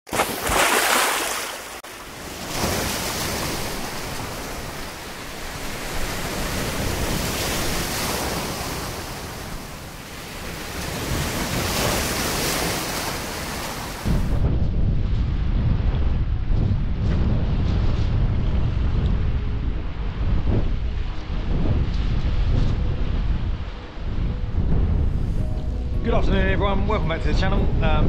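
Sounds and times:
sea waves breaking: 0.1s - 14.5s.

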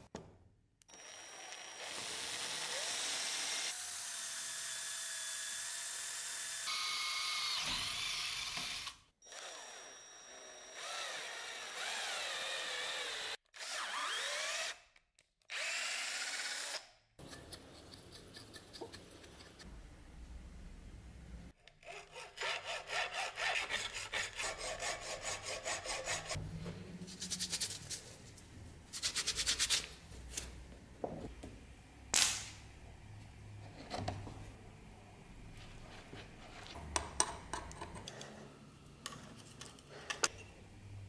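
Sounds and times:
electric drill boring: 0.9s - 14.8s, 15.5s - 16.9s.

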